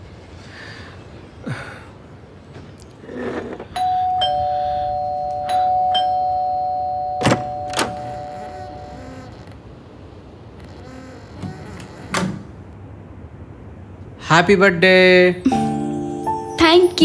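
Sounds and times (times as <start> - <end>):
two-tone doorbell chime: 3.8 - 9.3, 15.5 - 17.0.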